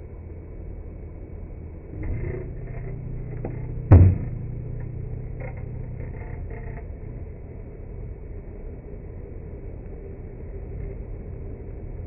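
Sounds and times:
slowed microwave hum: 0.0s - 12.0s
light bulb bursting bang: 3.9s - 4.6s.

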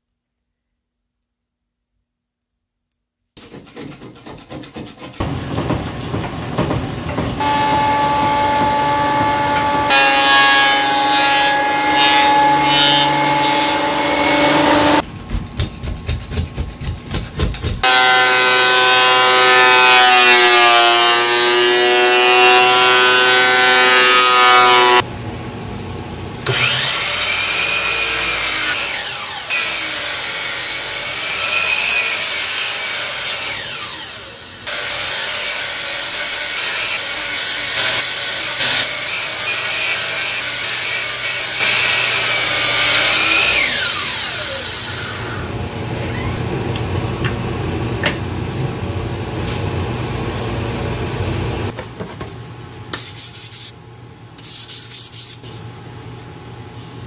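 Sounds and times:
thickness planer cutting board: 3.4s - 25.0s
power tools cutting wood: 6.5s - 15.0s, 17.8s - 25.0s, 26.4s - 46.5s.

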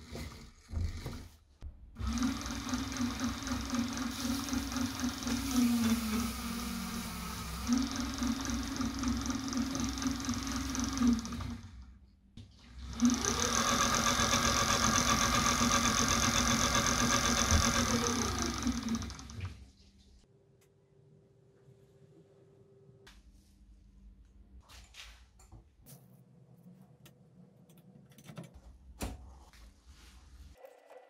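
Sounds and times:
electric motor whining: 2.0s - 11.6s, 13.0s - 19.5s.

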